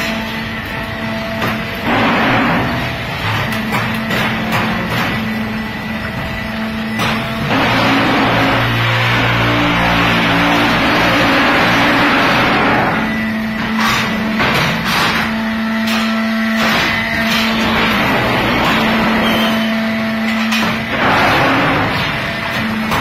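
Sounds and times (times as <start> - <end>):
steady machine hum: 0.0 - 23.0.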